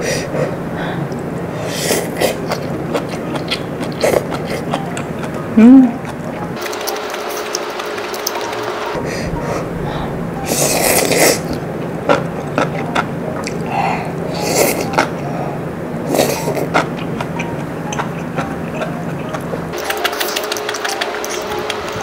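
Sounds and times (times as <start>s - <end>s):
person slurping noodles: 10.4s - 11.6s.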